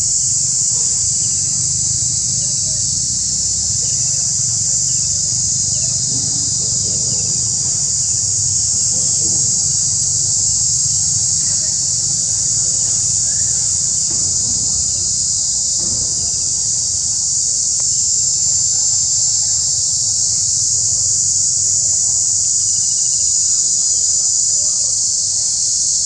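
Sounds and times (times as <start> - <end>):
low steady rumble: 0.0 - 17.0
high-pitched insect chorus: 0.0 - 26.0.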